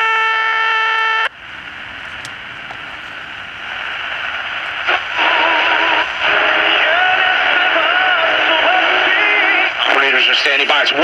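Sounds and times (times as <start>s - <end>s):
steady electronic whine: 1.1s - 9.8s
radio static hiss: 1.1s - 11.0s
radio broadcast: 1.2s - 11.0s.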